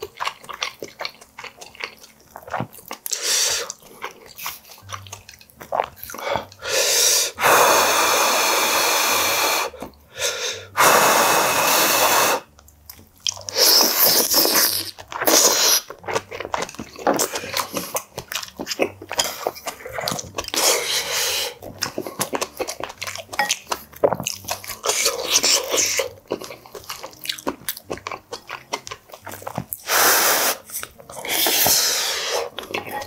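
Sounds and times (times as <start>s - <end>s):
wet chewing clicks: 0.0s - 6.7s, 12.5s - 33.0s
slurping soup: 0.0s - 12.6s, 13.3s - 33.0s
hissing sips: 6.1s - 12.5s, 13.5s - 15.9s, 20.6s - 21.6s, 29.8s - 32.6s.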